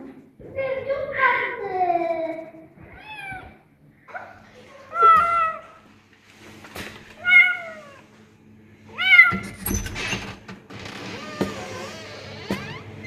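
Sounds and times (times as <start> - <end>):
kitten meowing: 2.9 - 3.6, 7.2 - 8.0.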